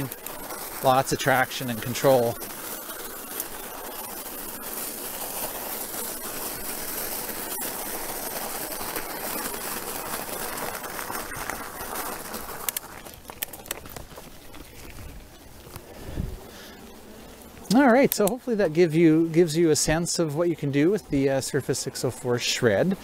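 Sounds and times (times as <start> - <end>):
sharp clicks and ticks: 0.0 - 15.9, 17.6 - 20.0
bike tyres crunching on gravel: 0.0 - 23.0.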